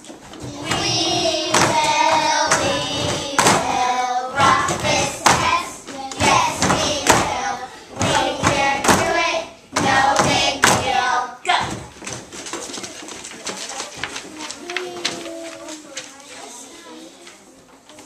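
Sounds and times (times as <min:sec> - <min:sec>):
children singing in unison: 0:00.4 - 0:11.4
steady beat thumps: 0:00.5 - 0:11.0.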